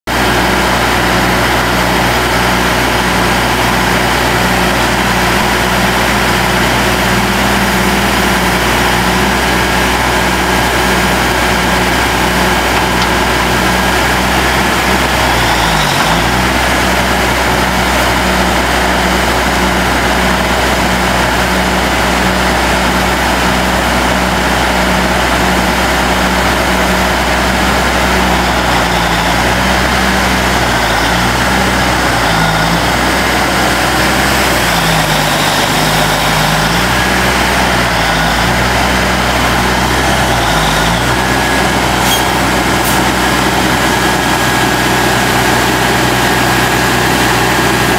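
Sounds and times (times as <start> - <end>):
diesel truck engine idling: 0.1 - 47.9
hydraulic hoist raising: 26.1 - 47.9.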